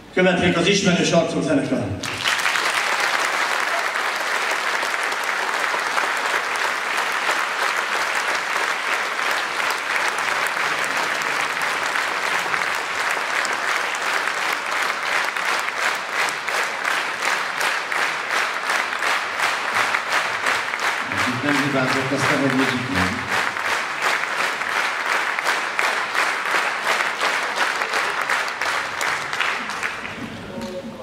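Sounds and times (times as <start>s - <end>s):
large audience applauding: 2.0s - 31.0s.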